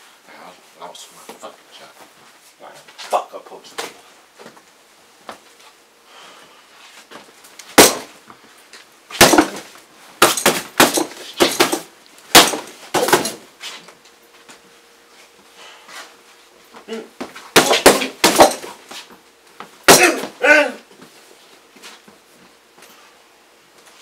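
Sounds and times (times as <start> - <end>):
boxing gloves punching heavy bag: 7.8 - 8.1, 9.1 - 13.4, 17.5 - 18.8, 19.8 - 20.4.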